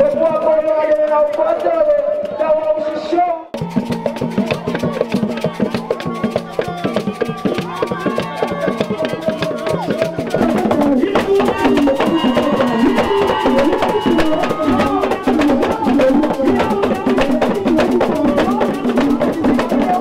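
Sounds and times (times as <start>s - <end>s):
wood-block clicking rhythm: 0.0s - 2.6s, 3.5s - 20.0s
drum and percussion music: 0.0s - 20.0s
voices singing: 3.8s - 20.0s.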